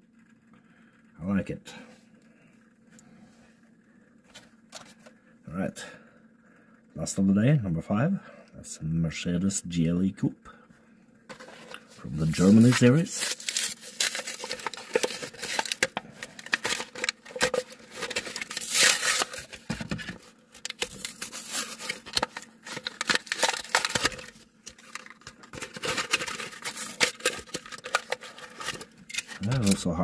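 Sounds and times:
blister pack crinkling and tearing: 0:11.4 - 0:29.9.

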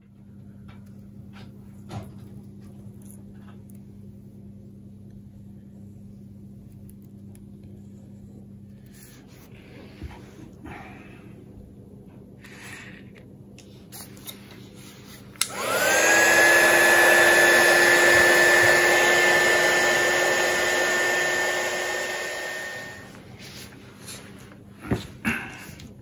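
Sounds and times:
heat gun fan whining: 0:15.2 - 0:23.3
heat gun switch click: 0:15.4 - 0:15.9
rush of hot air: 0:15.5 - 0:23.1.

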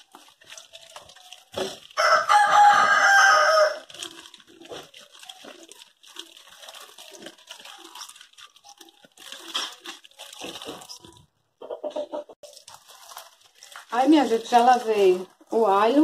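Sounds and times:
vegetables scrubbed by hand: 0:00.0 - 0:11.3, 0:12.4 - 0:16.0
rooster crowing: 0:02.0 - 0:03.9.

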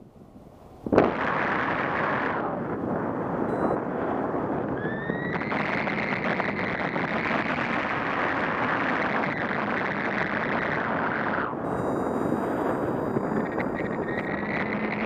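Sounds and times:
wind rushing over microphone: 0:00.0 - 0:15.0
thin high tone: 0:11.6 - 0:15.0.

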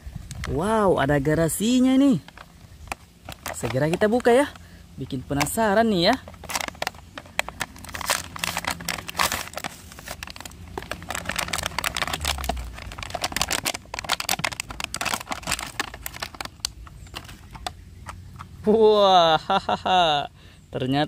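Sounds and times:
plastic packaging being torn open: 0:02.2 - 0:04.5, 0:06.2 - 0:18.2.

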